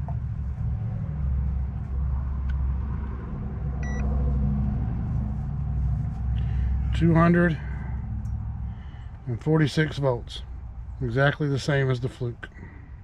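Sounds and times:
steady low hum: 0.0 - 13.0
short electronic beep: 3.8 - 4.1.

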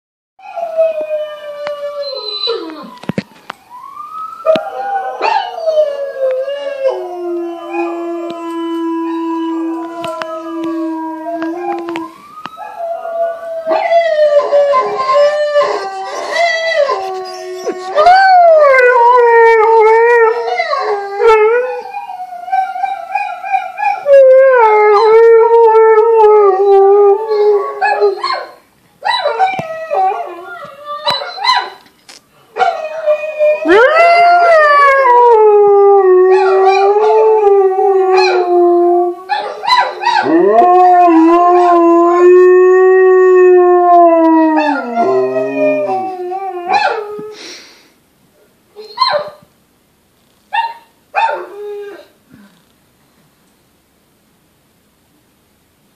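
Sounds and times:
dog howling on television: 4.4 - 28.4, 32.6 - 47.2
dog howling: 4.5 - 28.3, 32.6 - 47.2.

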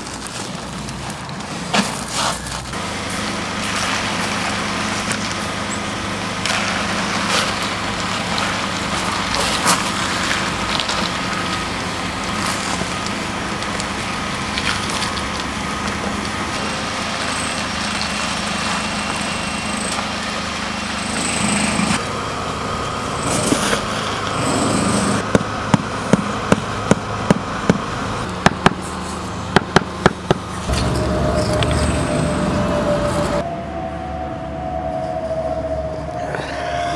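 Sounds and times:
small engine running: 17.1 - 22.2, 22.9 - 25.3.

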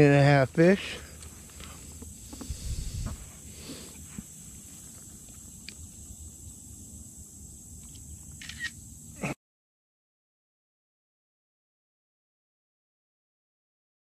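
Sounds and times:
low rumble and hiss: 0.0 - 9.2.

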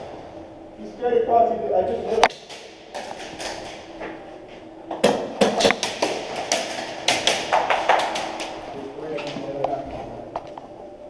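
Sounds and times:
pellets striking plywood: 4.9 - 8.6
airsoft guns firing: 5.0 - 8.6.

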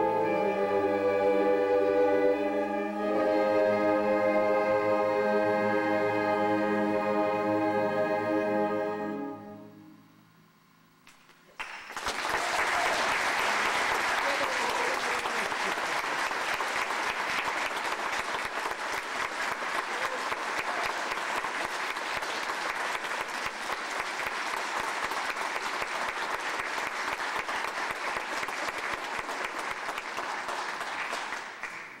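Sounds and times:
audience applauding: 11.5 - 32.0.

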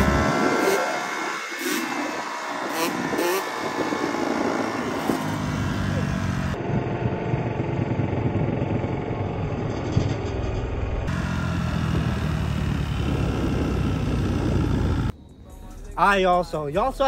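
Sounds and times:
dirt bike engine revving: 0.0 - 6.6, 11.1 - 15.2.

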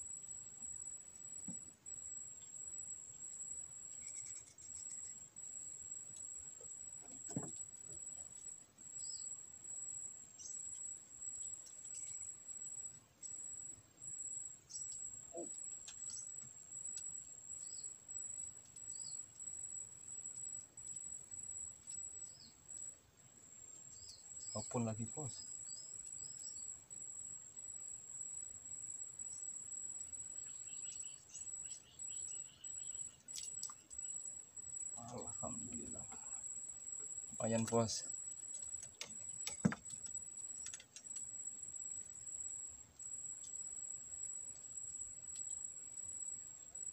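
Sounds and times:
bird chirps: 4.0 - 5.2, 23.9 - 26.8, 30.3 - 34.3
high-pitched insect drone: 4.0 - 5.2, 34.9 - 36.7.

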